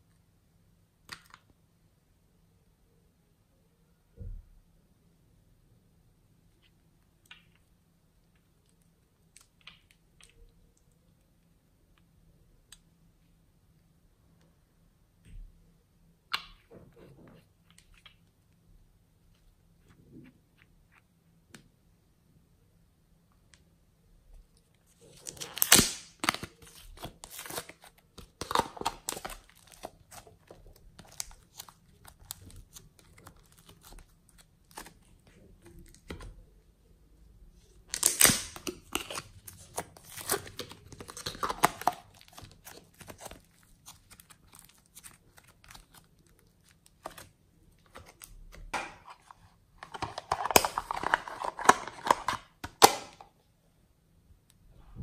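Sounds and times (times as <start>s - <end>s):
plastic crinkling and tearing: 25.0s - 36.1s, 37.9s - 48.4s, 49.0s - 52.9s.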